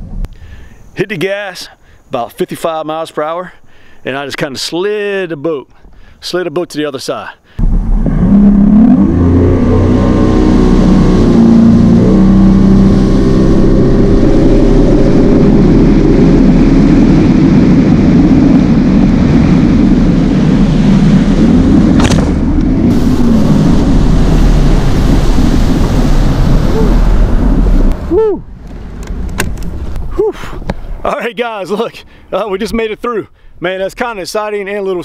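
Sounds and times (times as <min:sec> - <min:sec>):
outboard motor at full throttle: 0:07.6 - 0:28.2
sharp crack: 0:21.8 - 0:28.0.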